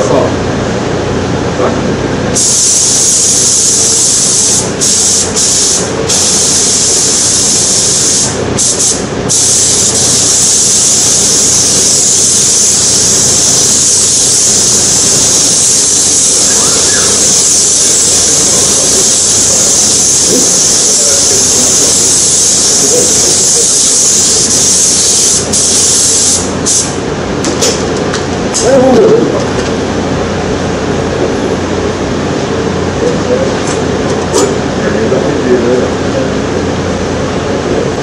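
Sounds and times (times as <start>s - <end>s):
spray gun hissing: 2.4s - 27.0s.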